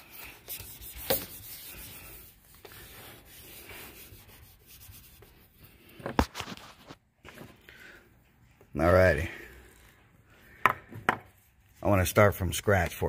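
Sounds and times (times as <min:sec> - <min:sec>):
eraser rubbing on whiteboard: 0:00.0 - 0:05.6.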